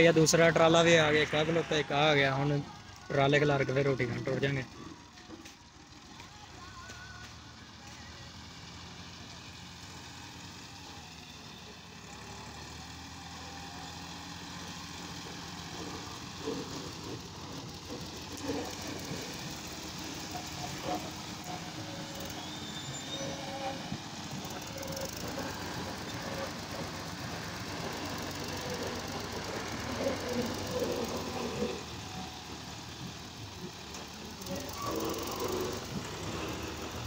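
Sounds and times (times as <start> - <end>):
diesel tractor engine running: 0.0 - 37.0.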